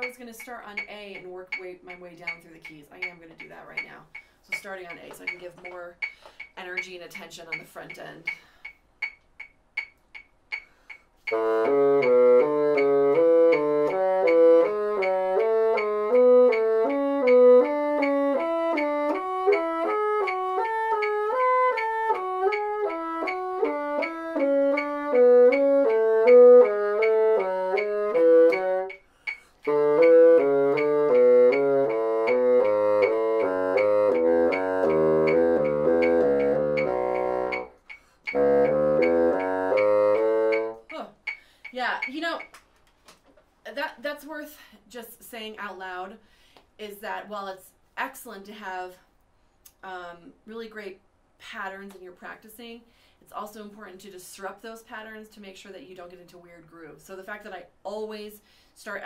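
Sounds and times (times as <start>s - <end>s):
metronome ticking: 0.0s - 42.6s
breaths: 4.1s - 4.5s, 6.0s - 6.6s, 8.3s - 8.8s, 10.6s - 11.2s, 29.0s - 29.6s, 37.9s - 38.3s, 41.3s - 41.8s, 44.5s - 44.9s, 46.2s - 46.8s, 52.8s - 53.3s, 58.4s - 58.8s
bassoon playing scale: 10.6s - 41.1s.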